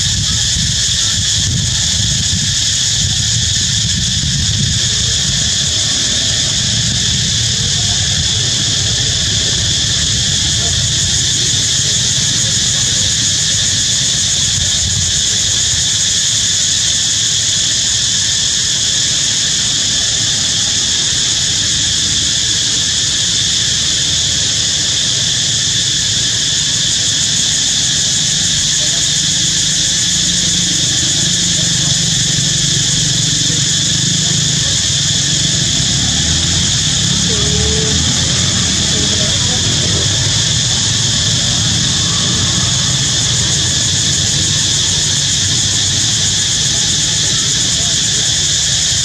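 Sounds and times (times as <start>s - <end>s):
insect chorus buzzing: 0.0s - 49.0s
low rumble: 31.7s - 46.3s.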